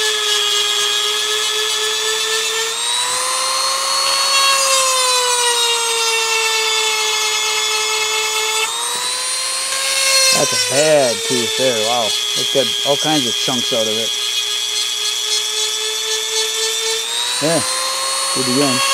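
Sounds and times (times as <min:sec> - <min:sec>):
rotary tool grinding metal: 0:00.0 - 0:18.9.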